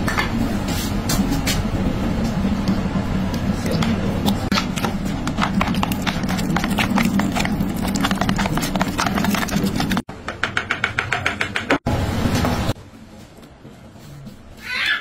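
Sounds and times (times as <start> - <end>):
fork scraping plastic bowl: 5.3 - 10.0.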